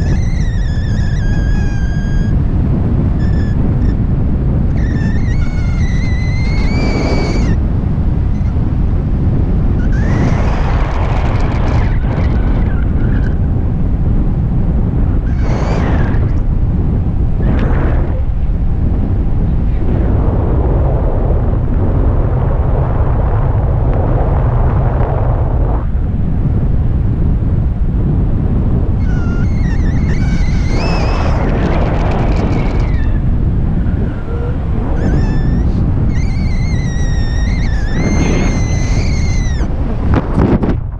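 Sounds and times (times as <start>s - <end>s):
wind rushing over microphone: 0.0s - 40.9s
high wavering whistle: 4.7s - 7.6s, 29.0s - 31.5s, 33.8s - 39.7s.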